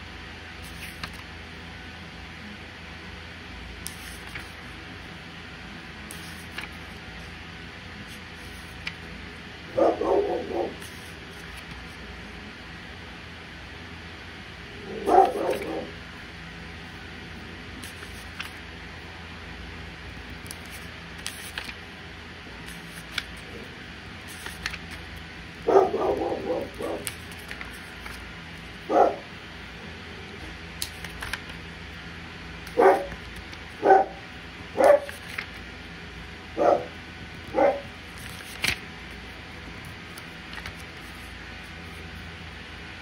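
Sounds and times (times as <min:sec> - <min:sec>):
steady low hum: 0:00.0 - 0:43.0
dog barking: 0:09.7 - 0:10.8, 0:14.9 - 0:15.9, 0:25.6 - 0:27.0, 0:28.9 - 0:29.3, 0:32.8 - 0:33.1, 0:33.8 - 0:34.2, 0:34.8 - 0:35.2, 0:36.6 - 0:36.9, 0:37.5 - 0:37.9.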